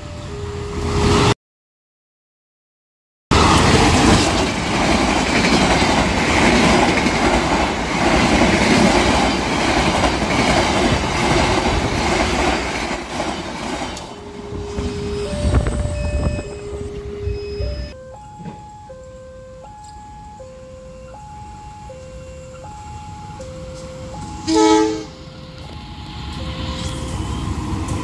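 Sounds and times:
train wheels clattering over rail joints: 3.4s - 14.2s
steady musical tones: 14.0s - 28.0s.

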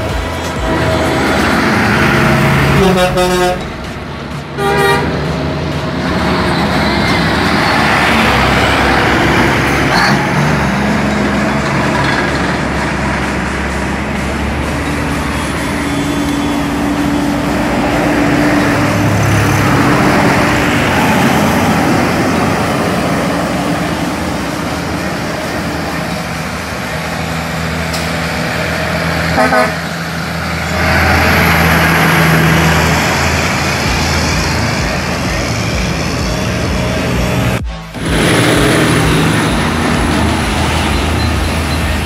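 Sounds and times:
diesel trucks and buses running: 0.0s - 42.0s
vehicle horn: 2.6s - 3.8s, 4.5s - 5.3s, 29.3s - 29.9s.

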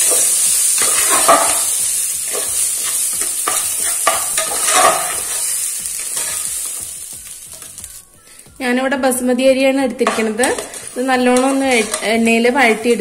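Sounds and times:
steady sizzle: 0.0s - 13.0s
spoon stirring rice in pot: 2.3s - 6.6s, 10.0s - 13.0s.

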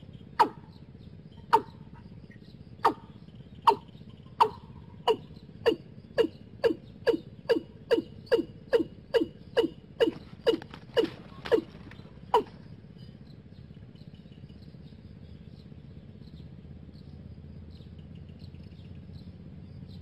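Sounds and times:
bird calling falling notes: 0.4s - 0.6s, 1.4s - 1.9s, 3.7s - 12.7s.

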